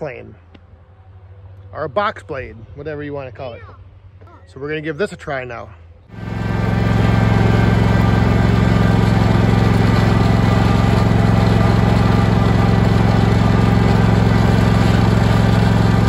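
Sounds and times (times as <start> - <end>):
lawn tractor engine running: 6.1 - 16.0.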